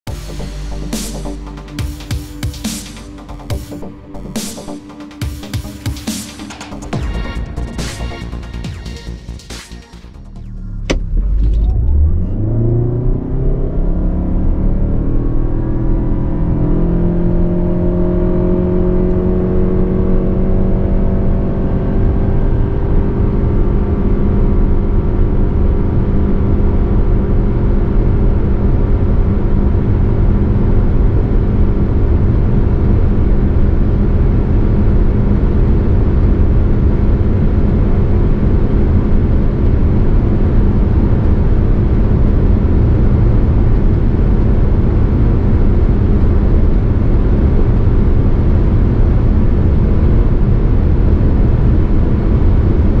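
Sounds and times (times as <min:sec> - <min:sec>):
car engine accelerating hard: 0:10.3 - 0:52.9
road and wind noise: 0:10.8 - 0:53.0.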